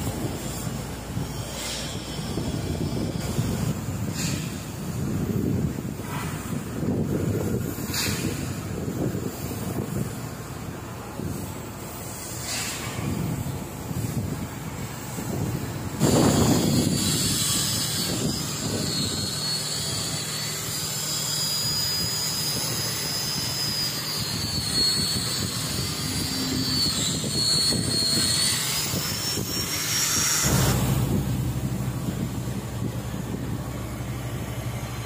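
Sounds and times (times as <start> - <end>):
angle grinder whining on steel: 14.7 - 35.0.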